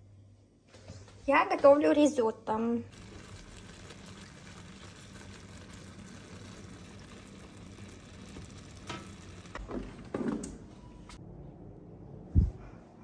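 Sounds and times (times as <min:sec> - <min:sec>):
food sizzling in a frying pan: 0:02.9 - 0:09.6.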